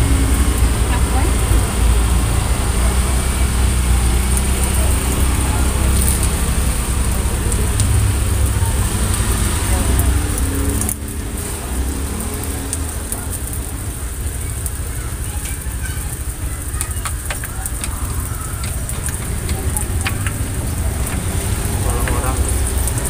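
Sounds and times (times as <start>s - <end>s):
skewers ticking against iron: 15.4s - 23.0s.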